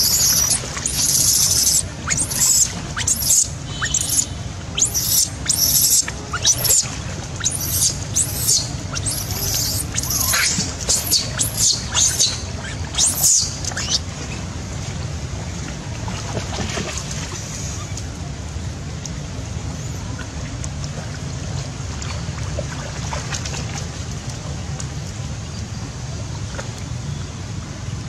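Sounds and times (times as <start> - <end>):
baby monkey distress squeals: 0.0 - 14.0.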